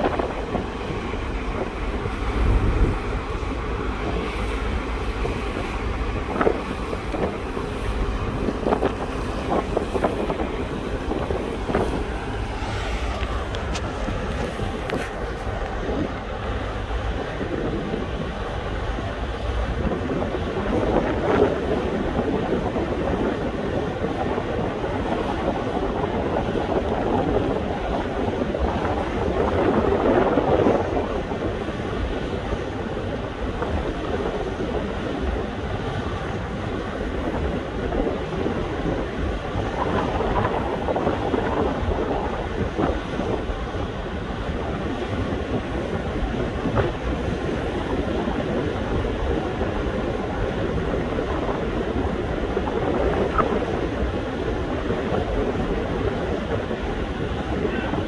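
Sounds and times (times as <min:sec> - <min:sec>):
crane machinery rumbling: 0:00.0 - 0:19.4
wind: 0:00.0 - 0:58.0.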